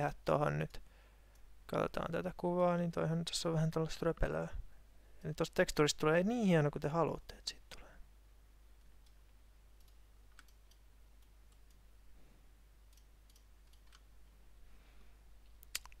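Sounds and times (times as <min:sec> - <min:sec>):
low steady hum: 0:00.0 - 0:16.0
faint mouse clicks: 0:09.8 - 0:11.8, 0:12.9 - 0:14.4.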